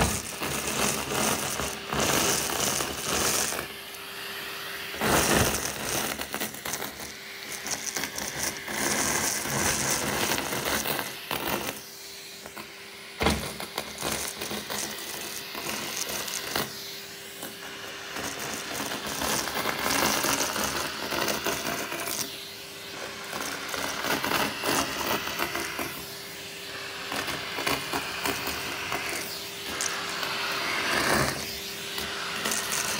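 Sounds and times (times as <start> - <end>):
confetti rattling up vacuum tube: 0.0 - 3.6, 18.1 - 22.1
vacuum cleaner running: 0.0 - 32.9.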